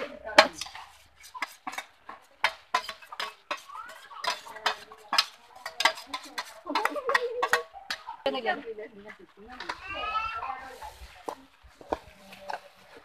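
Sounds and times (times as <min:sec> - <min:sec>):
spatula scraping a metal pan: 0:00.0 - 0:08.2.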